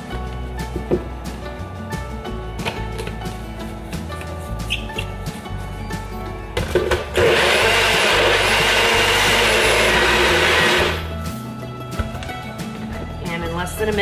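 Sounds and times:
blender whirring: 6.9s - 11.1s.

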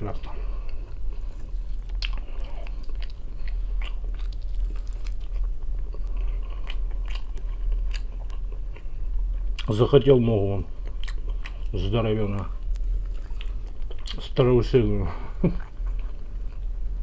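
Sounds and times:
steady low hum: 0.0s - 17.0s
person chewing meat: 0.6s - 9.7s, 10.8s - 11.8s, 12.5s - 14.2s.

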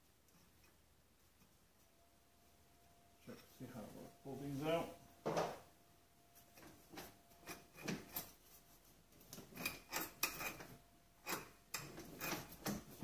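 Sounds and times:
brake drum metal scrapes and clunks: 9.4s - 13.0s.

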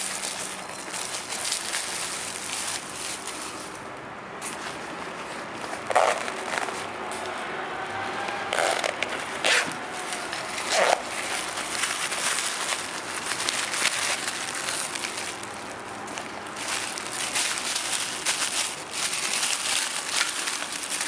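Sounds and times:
plastic bag crinkling: 0.0s - 3.8s, 4.4s - 7.3s, 8.4s - 21.0s
zipper rasps: 5.9s - 6.8s, 8.2s - 12.6s.

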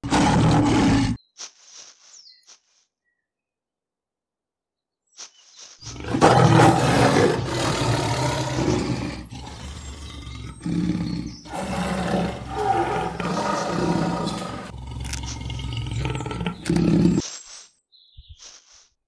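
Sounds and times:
big cats roaring and growling: 0.0s - 1.2s, 5.9s - 17.2s.

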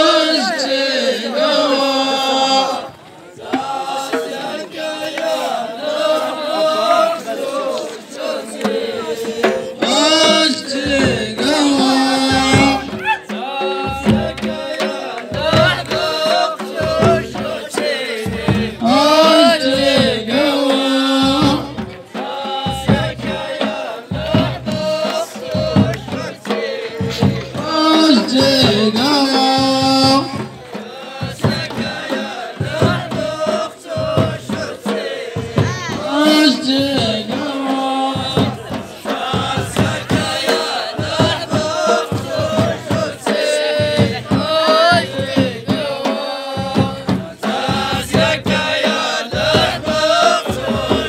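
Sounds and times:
frame drums beating: 0.0s - 51.0s
group singing in chorus: 0.0s - 51.0s.

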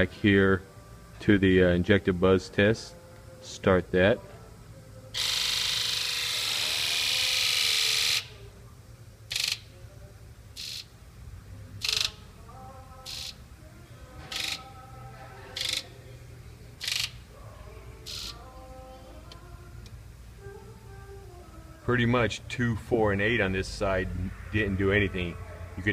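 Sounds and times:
fuel injectors buzzing: 5.2s - 8.5s, 9.3s - 9.7s, 10.6s - 11.0s, 11.7s - 12.4s, 13.0s - 13.4s, 14.2s - 15.0s, 15.6s - 16.0s, 16.8s - 17.4s, 18.0s - 19.9s.

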